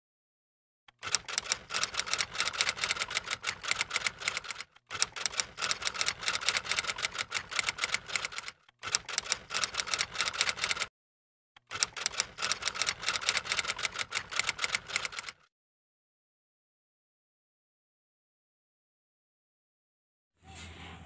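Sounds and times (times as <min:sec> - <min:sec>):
rapid keyboard key clicks: 0:00.9 - 0:10.9, 0:11.6 - 0:15.4.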